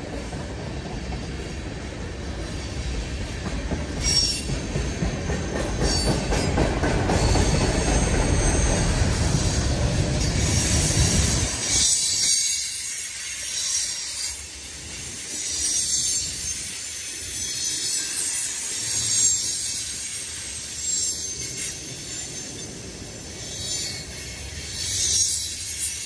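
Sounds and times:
train wheels hissing on rail: 0.0 - 26.0.

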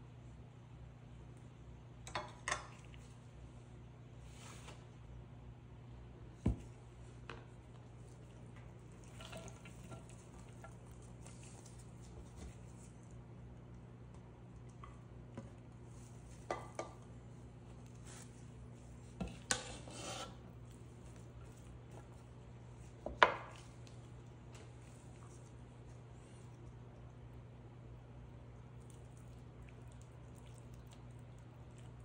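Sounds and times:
spatula scraping in bowl: 19.2 - 20.4.

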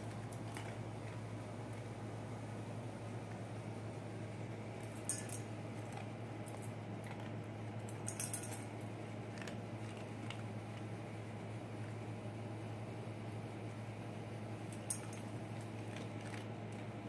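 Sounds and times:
steady low hum: 0.0 - 17.0
kibble clinking against metal bowl: 4.9 - 5.5, 7.9 - 8.7.

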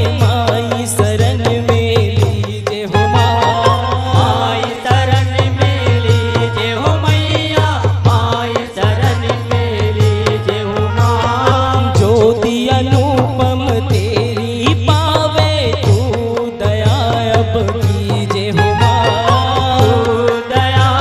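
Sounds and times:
hand drums beating: 0.0 - 21.0
bending melody line: 3.0 - 5.1, 18.6 - 20.3.

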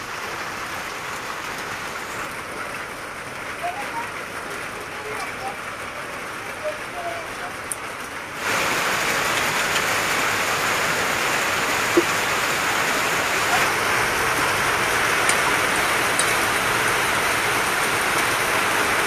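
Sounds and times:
heavy rain pouring: 0.0 - 19.0.

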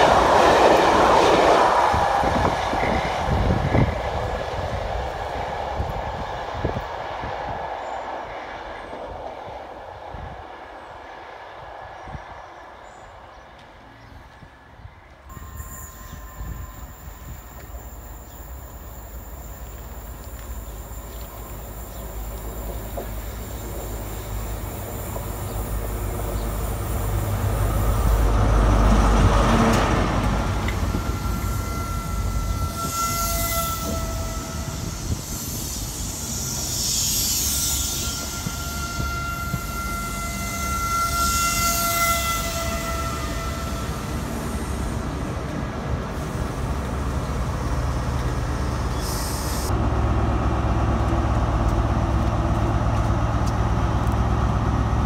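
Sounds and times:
train wheel noise: 0.0 - 12.5, 13.4 - 55.0
diesel train engine: 0.0 - 55.0
high steady squeals: 15.3 - 29.0, 30.1 - 45.3.

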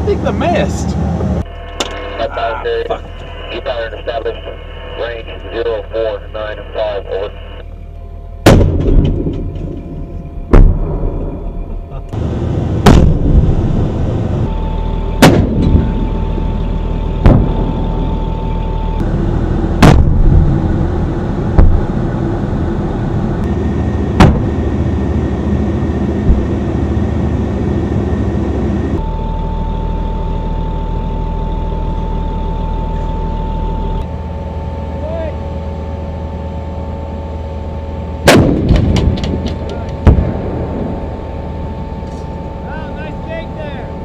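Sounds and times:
diesel engine rumbling: 0.0 - 44.0
high whine: 0.0 - 44.0
gunshots: 8.5 - 9.6, 12.8 - 13.4, 15.2 - 15.8, 19.8 - 20.4, 38.3 - 39.4.

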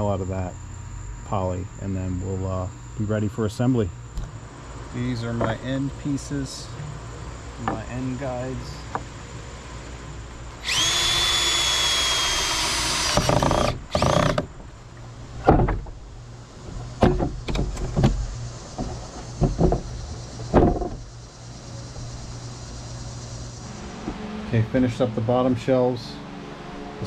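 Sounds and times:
cordless drill running: 10.6 - 14.4
wooden boards knocking: 15.4 - 15.9, 17.0 - 18.2, 18.8 - 19.9, 20.5 - 21.0.

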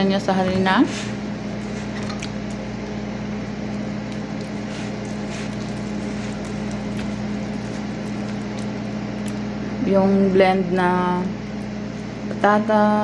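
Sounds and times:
appliance electrical hum: 0.0 - 13.0.

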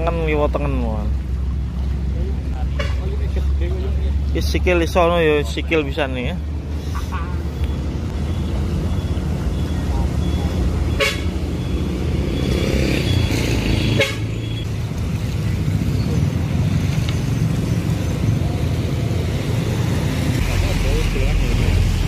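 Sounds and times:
traffic rumble: 0.0 - 22.0
vehicle horn tooting: 10.9 - 11.4, 13.8 - 14.6.

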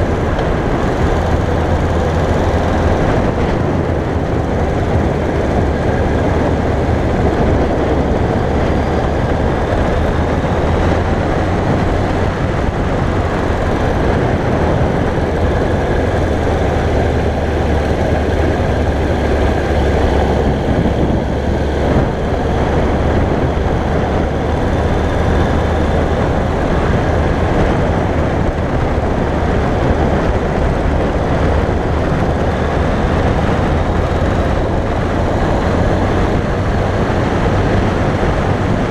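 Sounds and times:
motorcycle engine running: 0.0 - 38.9
wind rushing on microphone: 0.0 - 38.9.

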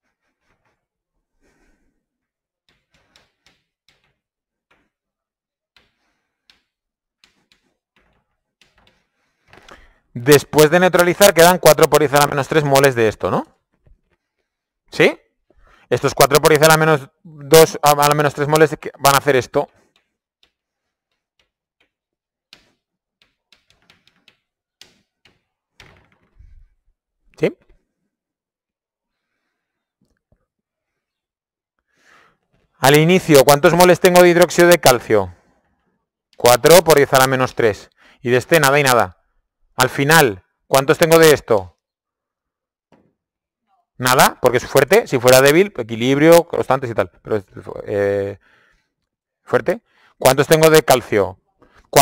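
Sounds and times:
chalk tapping on a blackboard: 2.6 - 5.0, 5.7 - 9.2, 19.6 - 25.6.

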